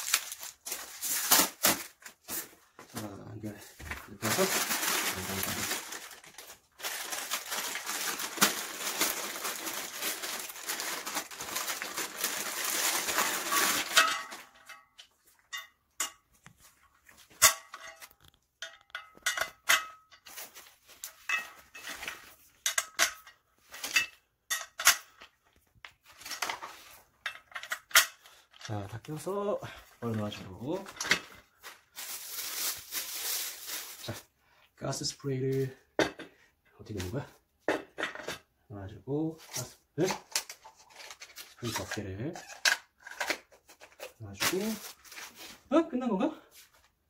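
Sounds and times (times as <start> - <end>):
plastic bag crinkling: 0.0 - 2.3, 4.0 - 14.7, 30.0 - 34.3, 44.4 - 45.6.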